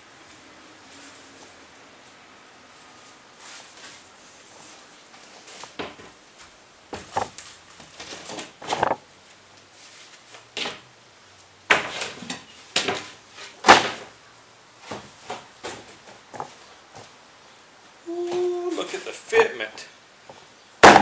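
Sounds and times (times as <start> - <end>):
plywood sheet knocks and thuds: 11.7 - 12.2, 12.8 - 14.1.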